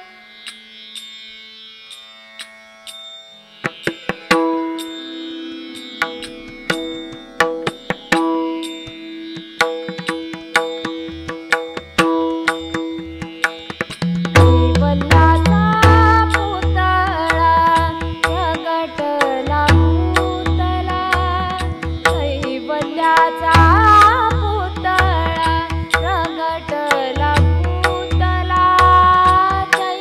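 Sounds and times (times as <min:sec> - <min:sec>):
melodic instrument sustained notes: 0:04.2 - 0:11.2
person singing: 0:14.6 - 0:30.0.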